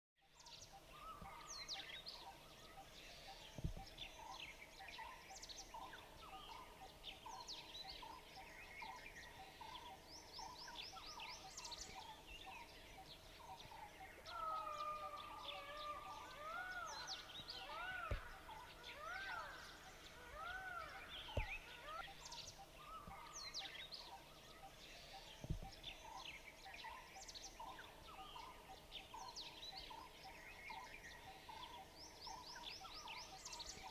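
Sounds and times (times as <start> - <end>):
birds chirping and calling: 0.4 - 33.9
dull thumps: 21.3 - 21.6.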